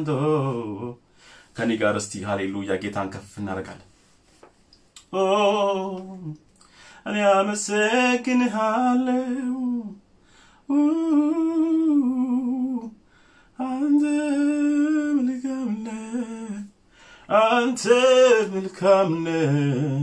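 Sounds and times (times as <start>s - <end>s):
man singing wordless phrases: 0.0s - 4.0s, 5.0s - 10.0s, 10.6s - 20.0s.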